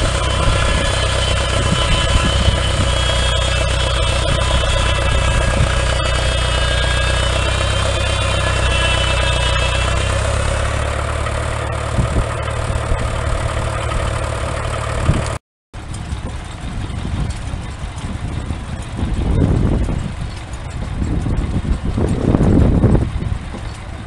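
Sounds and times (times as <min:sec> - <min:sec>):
high whine of circular saw: 0:00.0 - 0:12.7
tractor engine running: 0:00.0 - 0:24.0.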